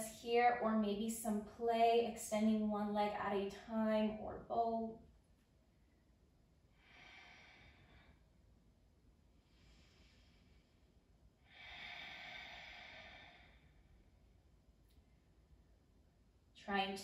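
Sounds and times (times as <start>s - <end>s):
woman breathing slowly: 6.6s - 8.6s, 9.2s - 15.4s.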